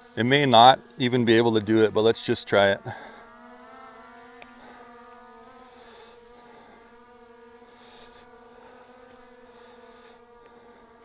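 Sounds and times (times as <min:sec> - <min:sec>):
drone propellers buzzing: 0:00.0 - 0:11.0.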